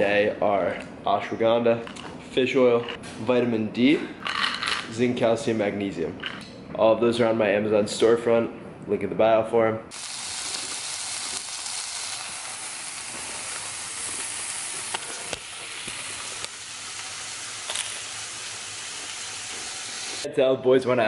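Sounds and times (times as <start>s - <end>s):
food sizzling in a pan: 9.9s - 20.3s.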